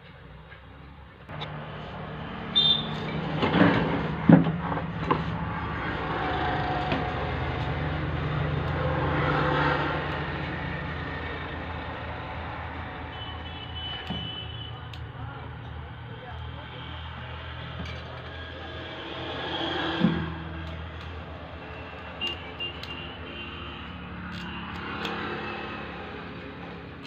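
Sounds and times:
vehicle engine running: 1.3s - 12.9s.

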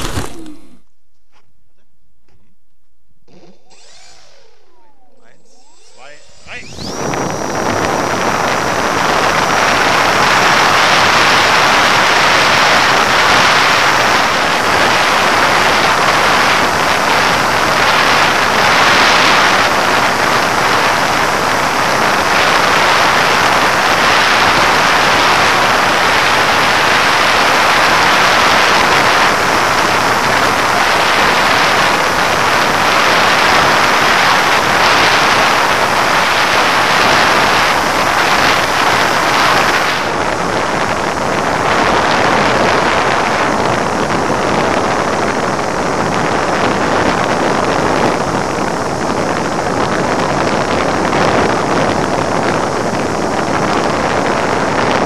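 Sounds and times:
propeller noise: 0.0s - 0.8s, 3.3s - 55.0s
rushing airflow: 0.0s - 0.8s, 5.8s - 55.0s.

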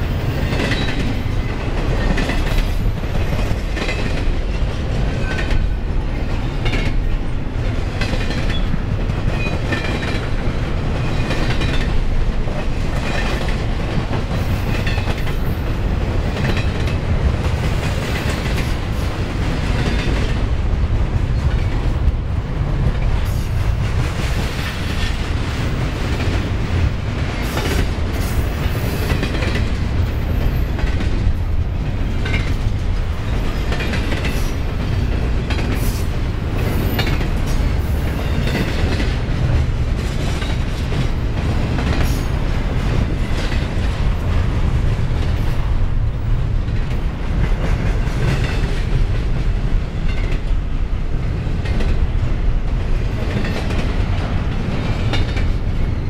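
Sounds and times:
train wheels rumbling on rails: 0.0s - 56.0s.

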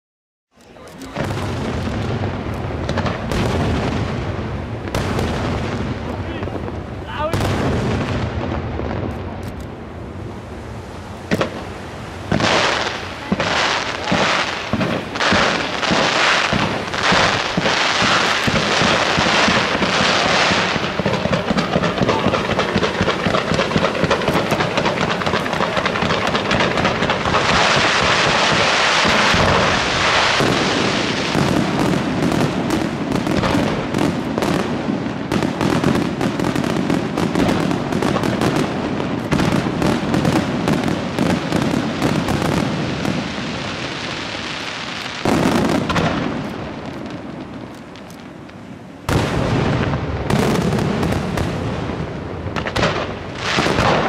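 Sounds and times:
firework crackle: 0.5s - 54.0s
firework shell reports: 0.6s - 1.8s, 6.0s - 7.8s, 12.3s - 29.7s
firework bangs: 0.6s - 54.0s.

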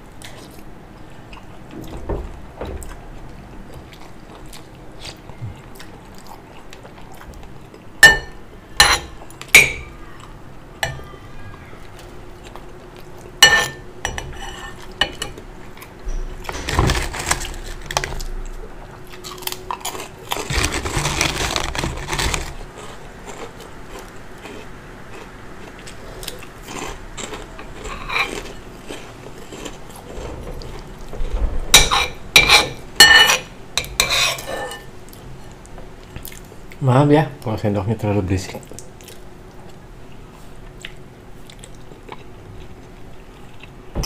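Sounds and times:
cutlery clinking on ceramic bowl: 13.4s - 15.4s, 31.8s - 34.9s.

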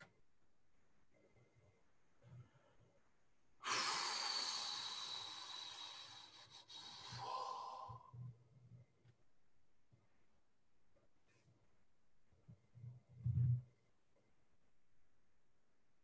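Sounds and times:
person exhaling breathily: 3.6s - 8.2s.

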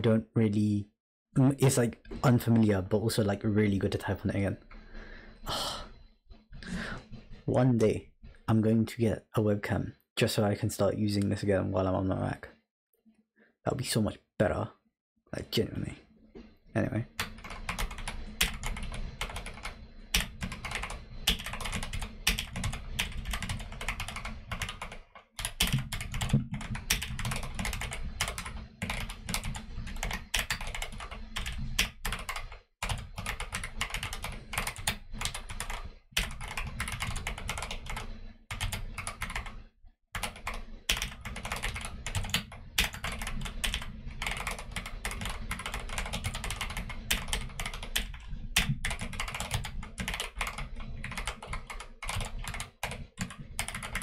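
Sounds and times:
fast mechanical keyboard typing: 17.1s - 39.6s, 40.2s - 54.0s.

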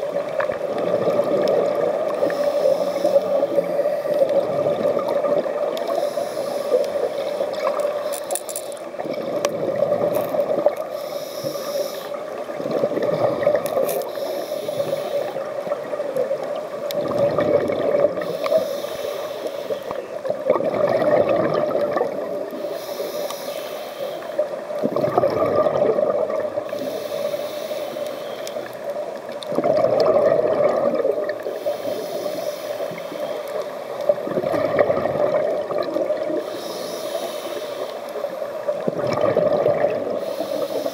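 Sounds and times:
water gurgling: 0.0s - 40.9s
person breathing underwater: 2.2s - 4.3s, 5.9s - 8.8s, 10.9s - 12.2s, 13.8s - 15.5s, 18.2s - 20.1s, 22.5s - 24.5s, 26.7s - 28.8s, 31.4s - 33.8s, 36.4s - 38.4s, 40.1s - 40.9s.

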